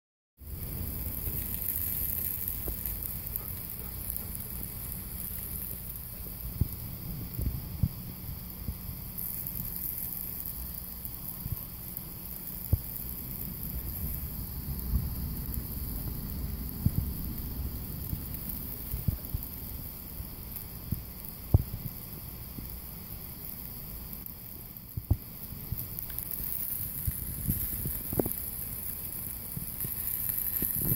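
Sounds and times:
food sizzling on a grill: 0.4 - 30.9
sharp clicks and pops: 0.4 - 30.9
low rumble: 10.5 - 21.8.

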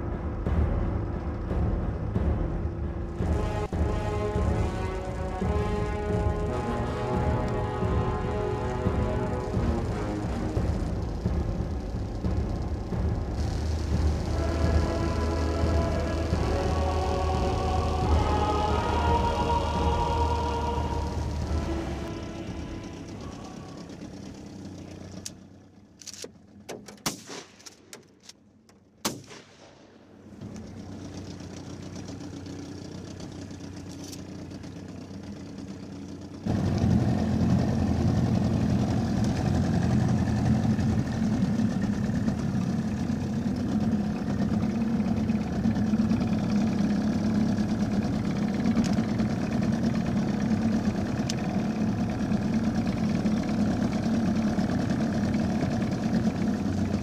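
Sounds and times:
small boat motor running: 0.0 - 26.7, 30.2 - 57.0
sharp clicks and knocks: 26.0 - 29.6.

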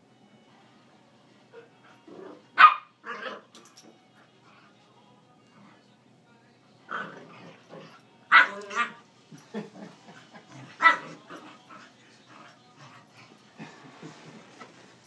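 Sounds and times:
dogs barking: 2.3 - 3.5, 8.3 - 9.0, 10.2 - 12.0.

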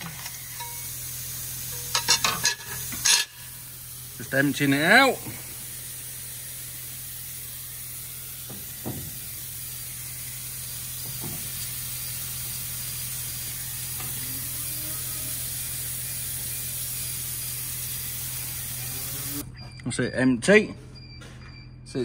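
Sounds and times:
hiss of falling grain: 0.0 - 19.4.

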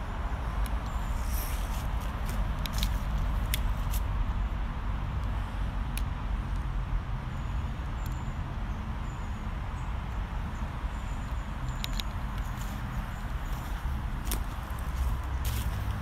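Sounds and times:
low rumble of road traffic: 0.0 - 16.0.

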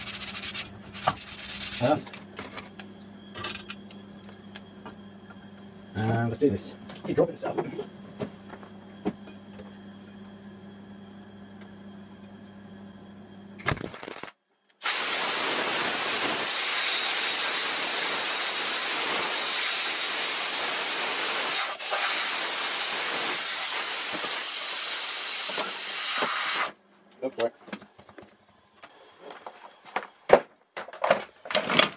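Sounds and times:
compressed air blow gun hissing: 14.8 - 26.7.

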